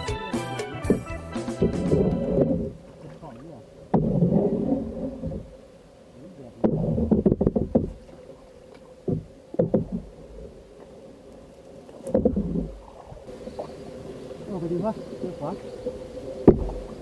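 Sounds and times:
knocks and thuds on canoe hull: 0:03.9 - 0:04.3, 0:06.6 - 0:08.2, 0:09.0 - 0:10.1, 0:12.0 - 0:12.9, 0:16.4 - 0:16.9.

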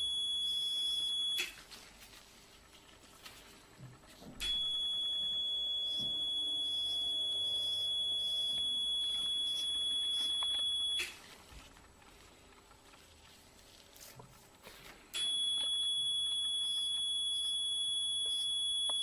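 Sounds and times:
steady high-pitched beep: 0:00.0 - 0:01.6, 0:04.4 - 0:11.2, 0:15.2 - 0:19.0.

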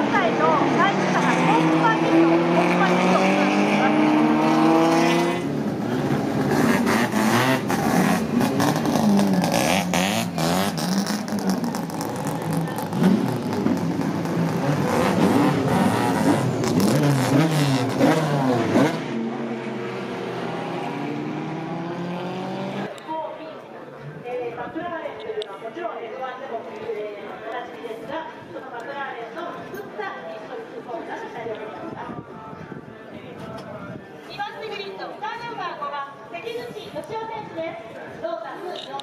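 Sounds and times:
race car engine revving: 0:00.0 - 0:22.9.

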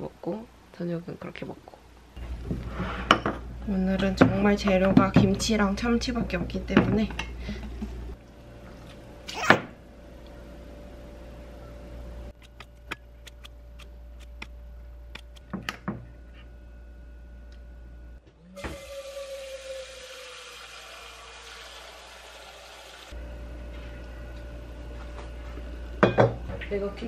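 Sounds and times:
kitchen scissors snipping: 0:12.4 - 0:15.5.

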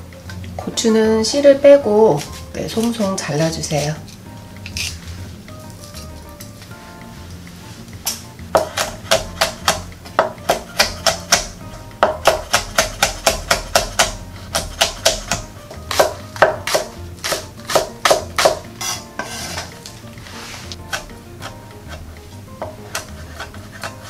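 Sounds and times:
knife chopping on wooden board: 0:08.6 - 0:19.7, 0:20.7 - 0:24.0.

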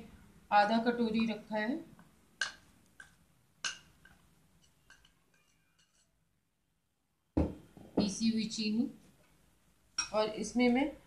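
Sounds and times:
metal spoon clinking on glass bowl: 0:03.6 - 0:06.2.

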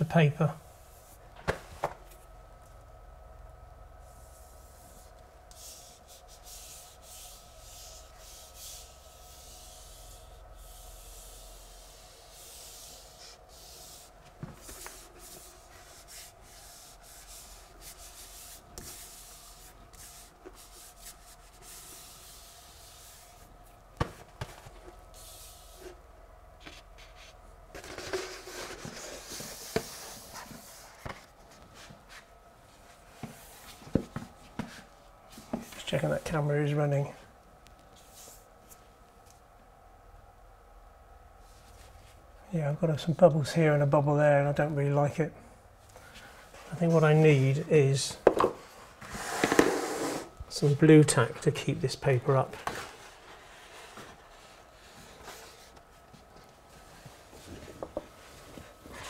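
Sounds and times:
paper rubbing and rustling: 0:26.6 - 0:31.9.

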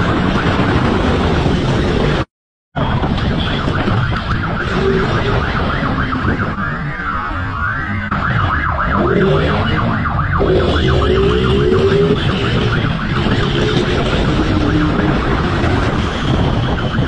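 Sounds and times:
police siren yelping: 0:03.0 - 0:17.0
motorcycle engine revving: 0:08.9 - 0:16.2.

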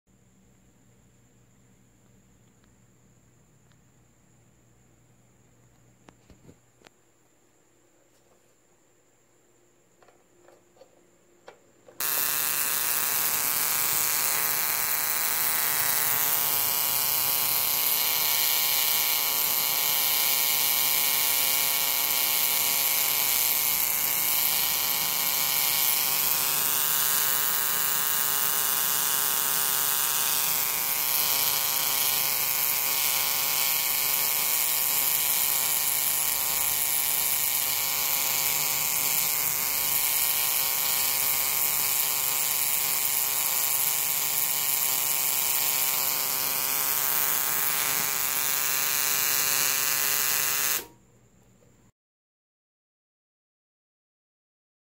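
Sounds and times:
tesla coil buzzing loudly: 0:12.0 - 0:51.0.

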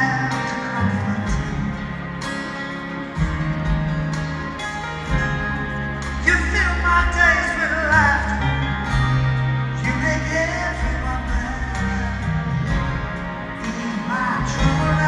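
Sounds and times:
man singing a slow ballad: 0:00.0 - 0:02.0, 0:06.2 - 0:08.9, 0:09.7 - 0:12.7, 0:13.6 - 0:15.0
band with bass and guitar: 0:00.0 - 0:15.0.

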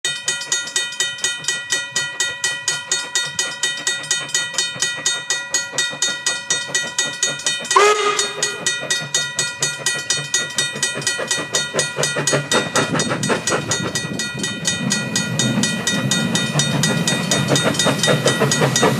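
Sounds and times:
steam locomotive exhaust chuffs: 0:00.1 - 0:18.9
steam whistle blast: 0:07.8 - 0:08.8.

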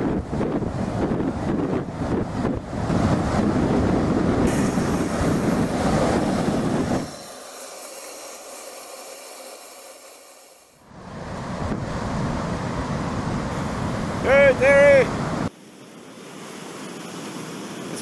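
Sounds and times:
wind buffeting microphone: 0:00.0 - 0:07.2, 0:10.9 - 0:15.5
hiss of breaking surf: 0:04.4 - 0:12.5.

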